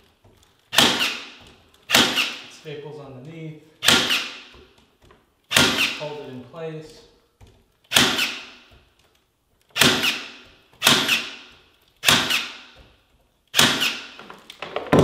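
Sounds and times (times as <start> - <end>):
staple gun firing loud clacks: 0.7 - 2.4, 3.8 - 4.4, 5.5 - 6.0, 9.8 - 11.4, 13.5 - 14.2.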